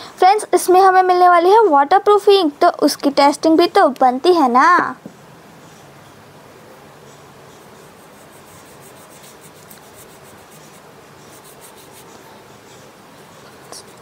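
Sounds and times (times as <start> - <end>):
paintbrush scratching on paper: 7.6 - 12.2, 13.5 - 14.0.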